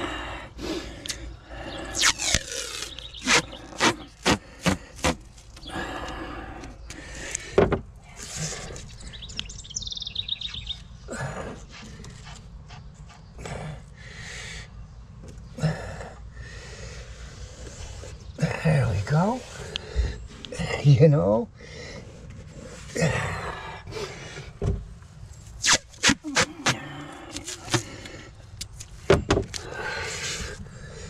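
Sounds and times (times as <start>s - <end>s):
masking tape ripping: 2.0s - 5.5s, 25.6s - 27.9s.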